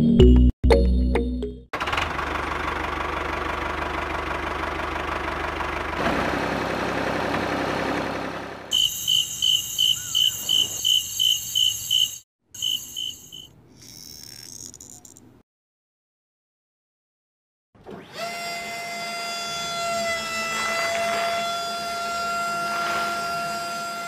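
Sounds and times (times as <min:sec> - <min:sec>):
fast high chirping: 0:08.7 - 0:15.2
small electric motor whirring: 0:08.7 - 0:15.2, 0:18.0 - 0:24.0.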